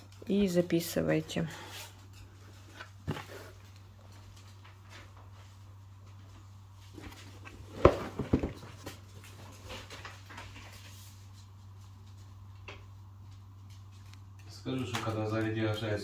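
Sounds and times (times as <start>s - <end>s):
cardboard box knocks and rustles: 7.7s - 8.8s.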